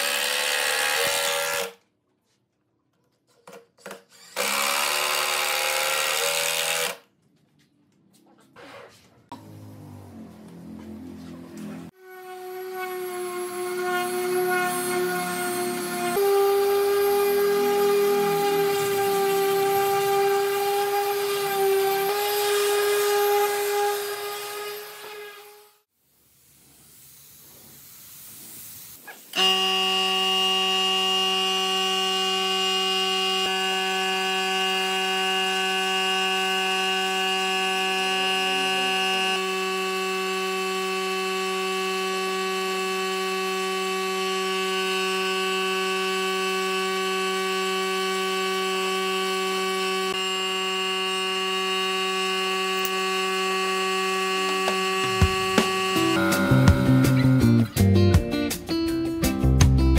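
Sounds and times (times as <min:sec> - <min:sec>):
spray gun hissing: 0:26.1 - 0:29.3.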